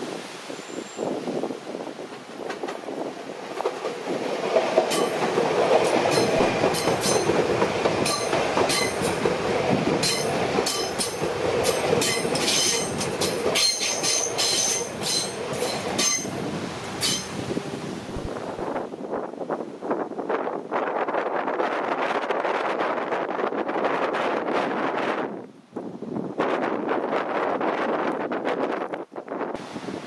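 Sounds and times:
train rumble: 0.2s - 25.2s
train wheels clicking over rail joints: 2.1s - 17.4s.

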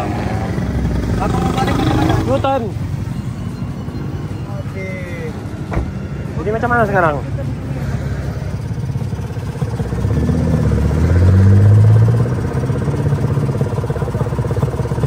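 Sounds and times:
engine idling: 0.0s - 15.0s
car driving past: 9.8s - 13.4s.

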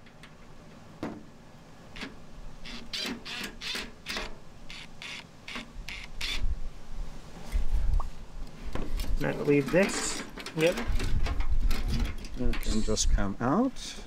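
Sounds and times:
metal and plastic parts clicking: 9.0s - 13.0s.

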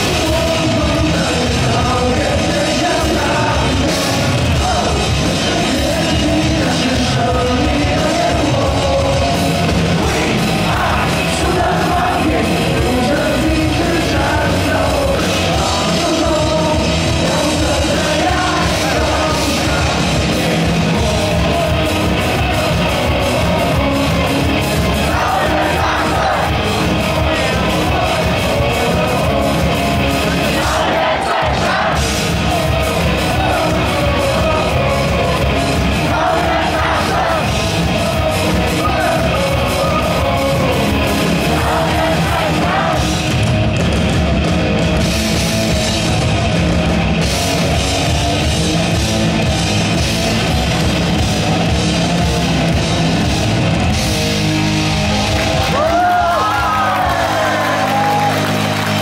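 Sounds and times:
man singing into a microphone: 0.0s - 24.3s, 38.6s - 42.7s
loud rock song over pa: 0.0s - 59.0s.

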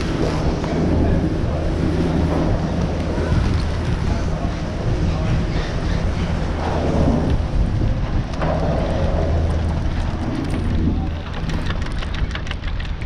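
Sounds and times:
chairlift rumble and hum: 0.0s - 13.0s
rushing crackling noise: 0.0s - 13.0s.

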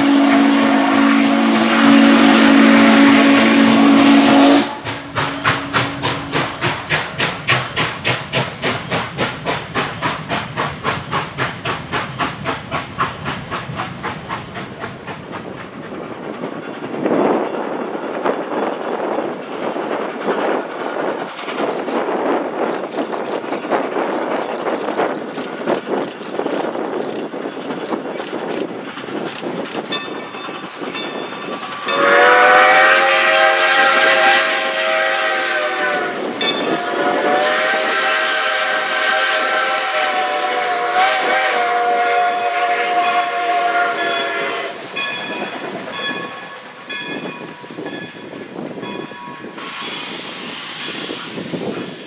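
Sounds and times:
steam locomotive exhaust beats: 0.0s - 52.0s
wheel clicks on rail joints: 4.8s - 31.4s.

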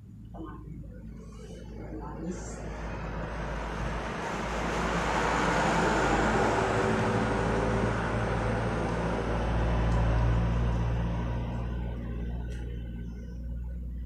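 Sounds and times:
low engine hum: 0.0s - 14.0s
road traffic passing: 0.0s - 14.0s.

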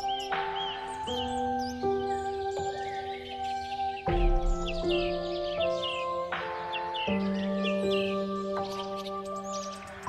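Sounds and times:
bird chirps: 0.0s - 10.0s
instrumental music of held notes: 0.0s - 10.0s.

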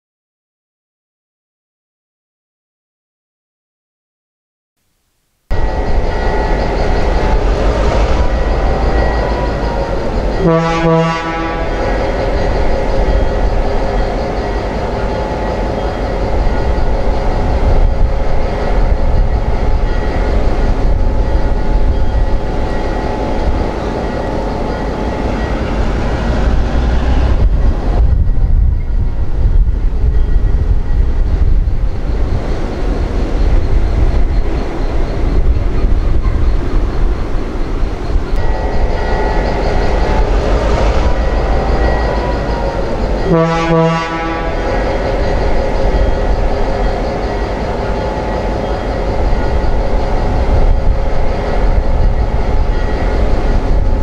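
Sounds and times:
diesel locomotive engine running: 5.5s - 54.0s
locomotive horn toot: 10.4s - 12.2s, 43.2s - 45.0s.

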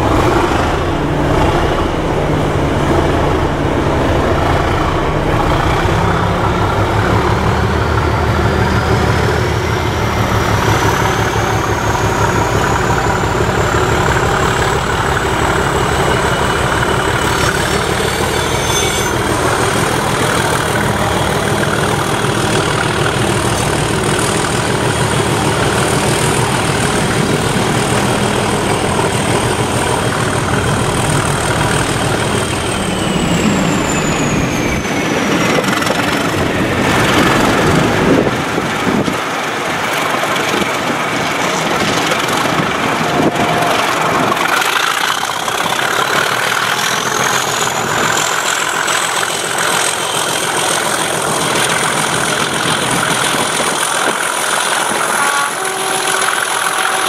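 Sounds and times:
diesel locomotive engine working hard: 0.0s - 57.0s
turbocharger whistle: 16.1s - 20.4s, 31.8s - 35.9s, 54.8s - 57.0s.

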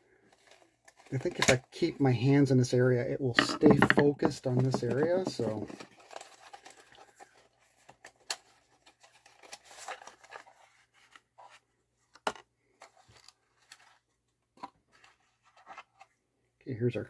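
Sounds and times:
paper packaging rustling: 3.7s - 11.6s, 12.8s - 14.1s.

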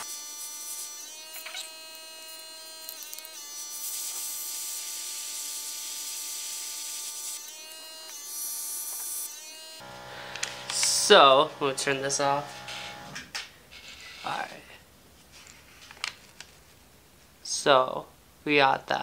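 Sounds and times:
airbrush compressor whine: 9.2s - 13.2s.

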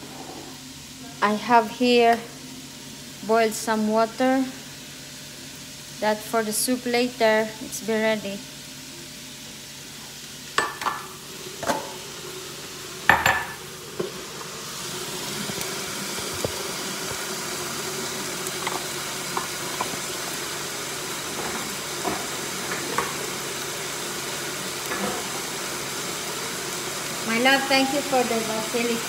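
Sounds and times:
kitchen utensils clinking: 10.6s - 12.0s, 13.1s - 13.6s.

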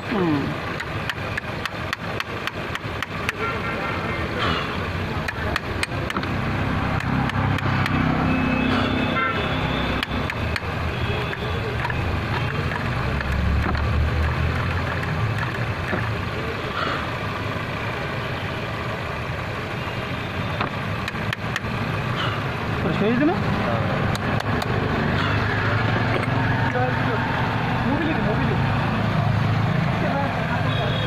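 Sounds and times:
road traffic rumbling: 0.0s - 31.0s
wrench clicking on battery terminal: 0.7s - 3.4s, 5.2s - 6.4s, 10.0s - 13.8s
heavy vehicle passing: 21.8s - 30.7s.

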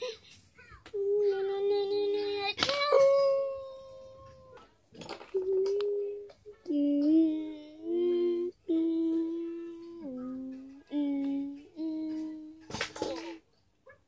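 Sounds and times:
person humming: 0.9s - 4.6s, 5.3s - 12.7s.

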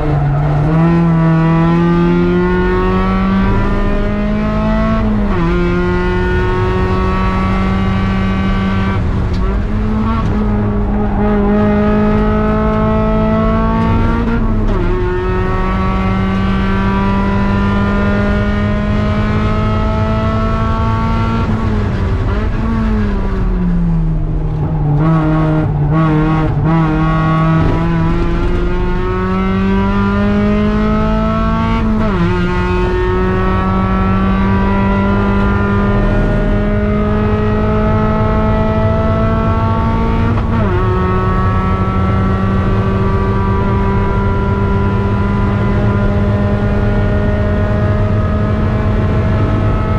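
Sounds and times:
car engine at full throttle: 0.0s - 49.9s.

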